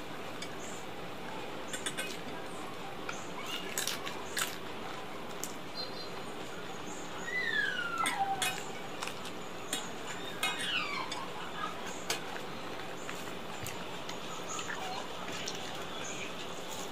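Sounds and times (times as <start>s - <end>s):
fan hum: 0.0s - 16.9s
chewing: 1.3s - 5.6s, 8.0s - 16.9s.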